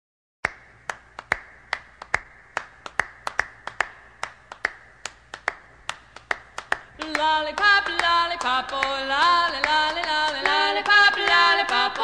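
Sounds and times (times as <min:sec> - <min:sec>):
hand claps on a beat: 0:00.4 - 0:12.0
vocal pop song: 0:06.7 - 0:12.0.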